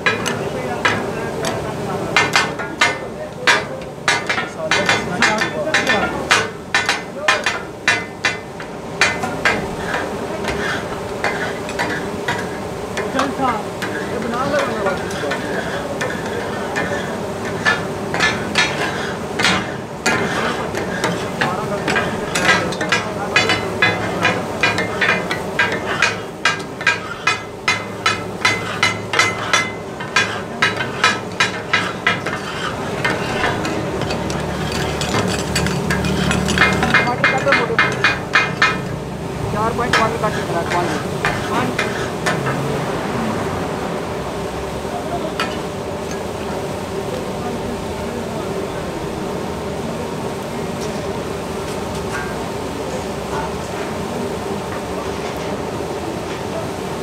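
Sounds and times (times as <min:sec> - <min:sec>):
metal spatulas striking griddle: 0:00.0 - 0:42.8, 0:45.3 - 0:46.3, 0:52.0 - 0:52.8
food steaming hiss: 0:00.0 - 0:57.0
steady sizzling: 0:00.0 - 0:57.0.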